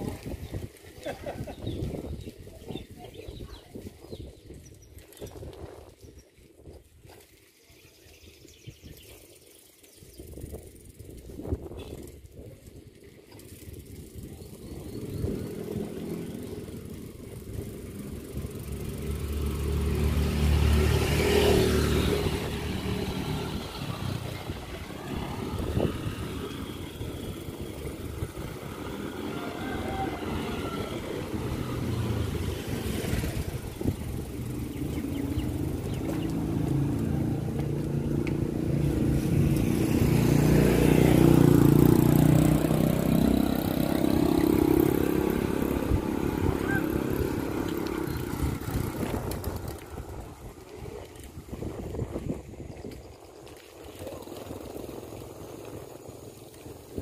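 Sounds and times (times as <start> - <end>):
motorcycle engine running: 13.4 - 57.0.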